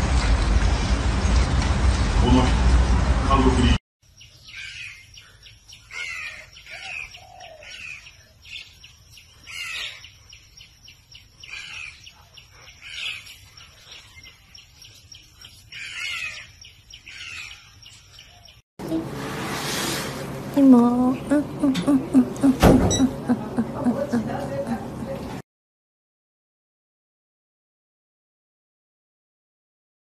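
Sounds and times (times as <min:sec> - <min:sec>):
birds chirping: 0:03.5 - 0:19.0, 0:20.3 - 0:25.4.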